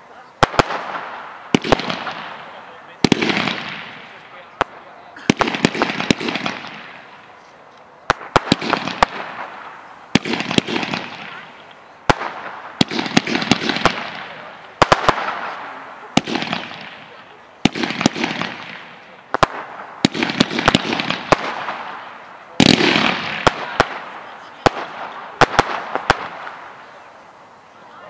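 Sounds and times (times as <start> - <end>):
firework bangs: 0.0 - 27.5
firework hiss: 0.0 - 27.8.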